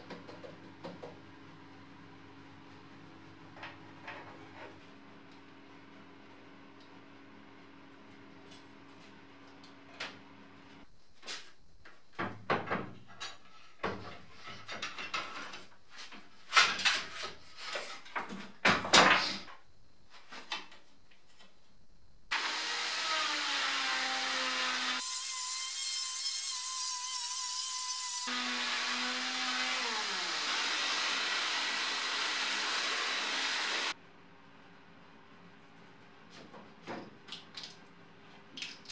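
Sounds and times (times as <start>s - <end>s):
power tool running: 22.3s - 34.0s.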